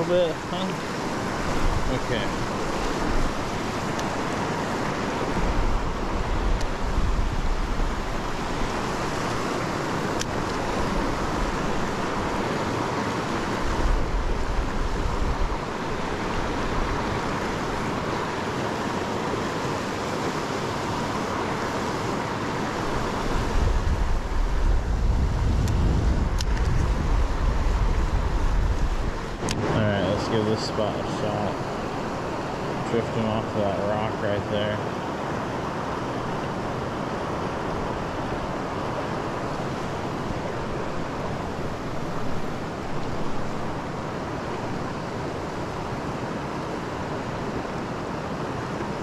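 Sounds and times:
river water rushing: 0:00.0 - 0:49.0
wind buffeting microphone: 0:00.9 - 0:30.6.

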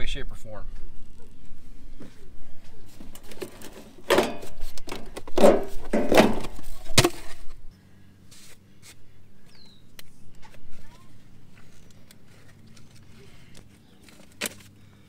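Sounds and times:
plastic pipe scraping and crackling: 0:11.5 - 0:14.7.

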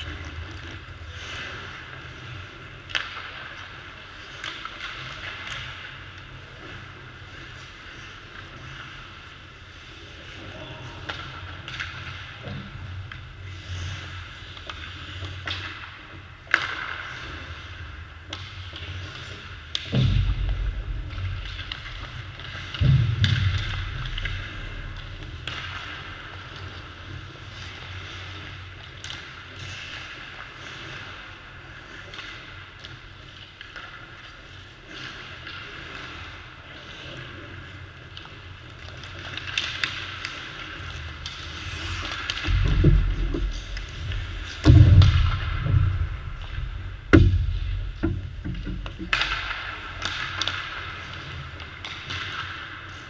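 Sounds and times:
skates scraping ice: 0:00.0 - 0:53.0
sticks striking pucks: 0:02.8 - 0:06.8, 0:11.0 - 0:13.3, 0:14.4 - 0:27.0, 0:38.8 - 0:53.0
heavy low thuds: 0:22.8 - 0:24.0, 0:42.5 - 0:49.1.

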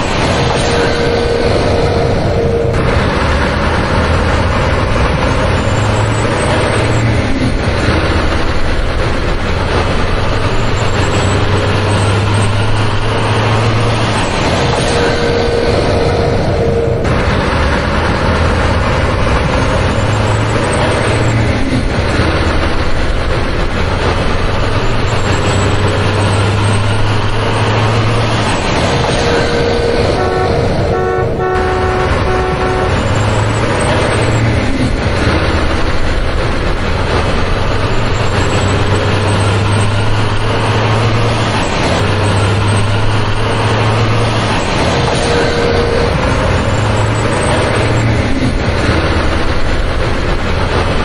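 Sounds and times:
truck engine running: 0:00.0 - 0:51.0
truck horn toots: 0:00.5 - 0:14.2, 0:14.8 - 0:21.4, 0:29.1 - 0:34.6, 0:45.1 - 0:48.1.

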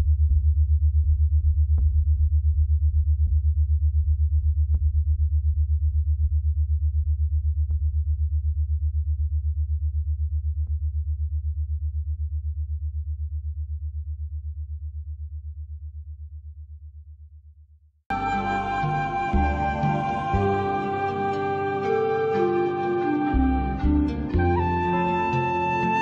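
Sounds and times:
pulsing synthesizer bass music: 0:18.1 - 0:26.0.

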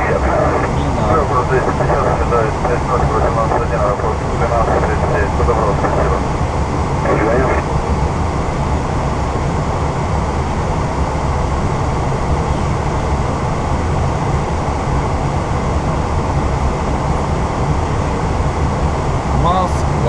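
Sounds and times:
airplane cockpit engine and air noise: 0:00.0 - 0:20.0.

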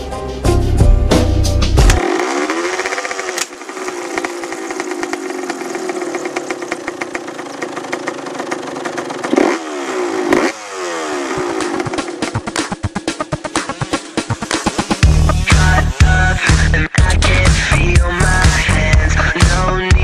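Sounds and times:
dirt bike engine idling and revving: 0:01.2 - 0:20.0.

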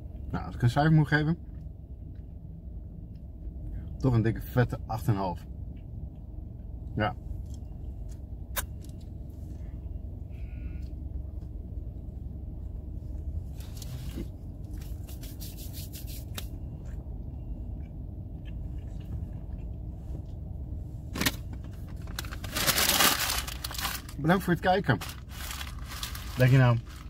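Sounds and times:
car cabin rumble: 0:00.0 - 0:27.0
food wrapper rustling: 0:21.9 - 0:24.2, 0:25.0 - 0:27.0
paper bag crinkling: 0:22.0 - 0:24.2, 0:24.9 - 0:27.0.

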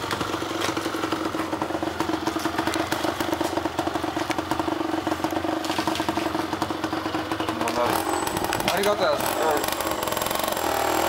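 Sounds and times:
two-stroke engine idling: 0:00.0 - 0:11.0.

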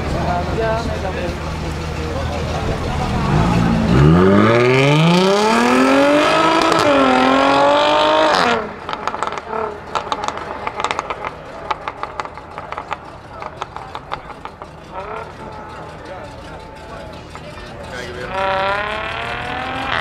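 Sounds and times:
car engine accelerating hard: 0:00.0 - 0:20.0
exhaust pops and crackles: 0:08.8 - 0:20.0.

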